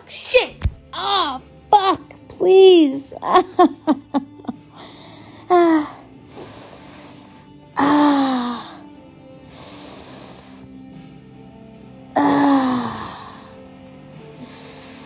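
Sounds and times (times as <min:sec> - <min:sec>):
breathy hissing: 0:04.7 - 0:10.8, 0:12.2 - 0:15.0.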